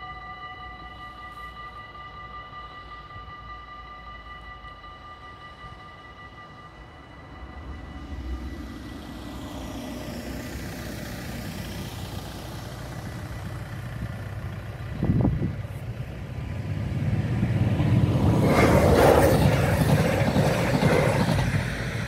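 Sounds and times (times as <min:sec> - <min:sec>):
passenger train rumbling: 0:00.0 - 0:22.0
van passing: 0:06.7 - 0:22.0.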